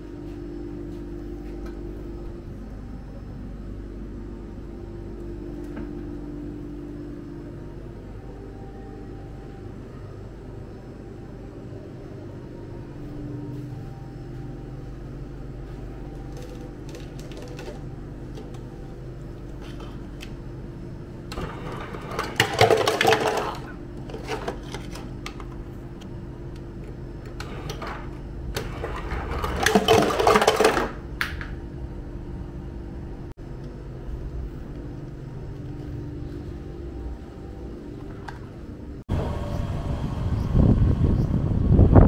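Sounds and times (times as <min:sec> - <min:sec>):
low machine hum: 0:00.0 - 0:42.0
ice cubes rattling into plastic cup: 0:16.3 - 0:17.8, 0:22.2 - 0:25.0, 0:28.9 - 0:31.0.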